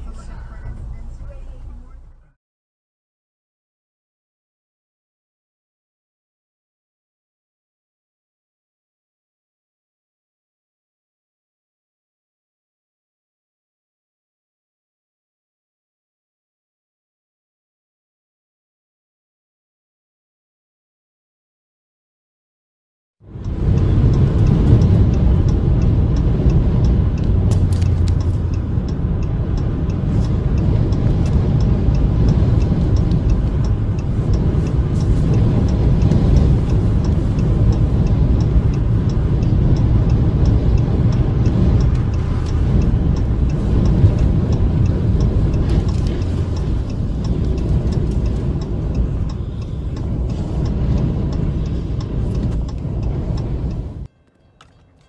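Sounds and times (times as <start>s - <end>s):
road noise: 0.0s - 2.4s, 23.2s - 55.0s
strong wind rumble: 23.2s - 54.1s
fast regular ticking: 23.3s - 54.0s.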